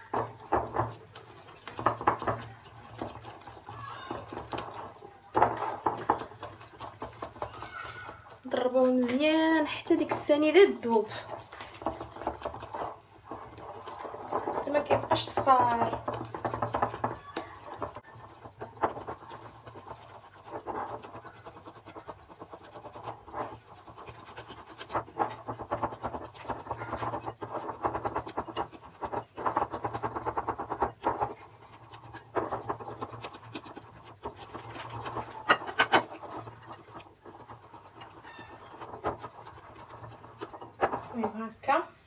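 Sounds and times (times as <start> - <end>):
whisk scraping ceramic bowl: 0.0 - 41.8.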